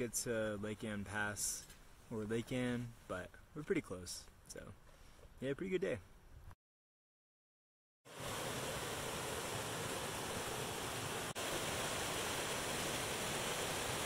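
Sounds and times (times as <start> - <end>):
creek rushing over rocks: 8.1 - 14.0.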